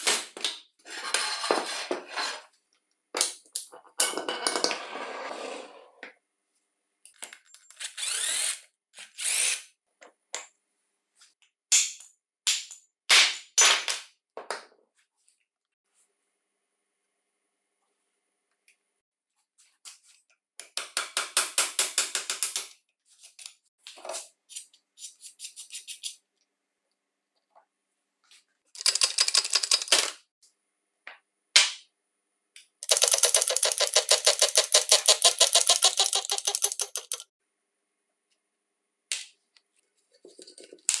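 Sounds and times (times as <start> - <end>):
rapid metallic clicking: 32.8 - 37.3.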